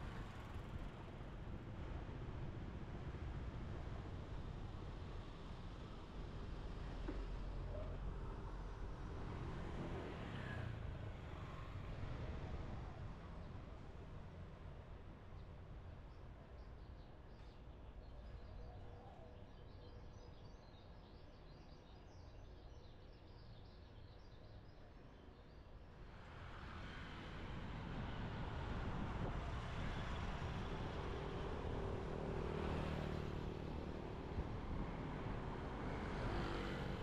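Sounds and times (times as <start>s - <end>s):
road traffic: 0.0s - 4.9s, 26.1s - 37.0s
engine hum: 27.2s - 37.0s.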